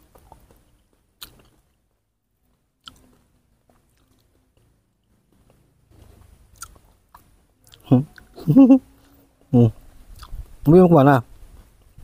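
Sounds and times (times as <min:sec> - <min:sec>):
wet chewing of juicy fruit: 0:00.0 - 0:01.8, 0:02.5 - 0:08.4, 0:09.0 - 0:10.6.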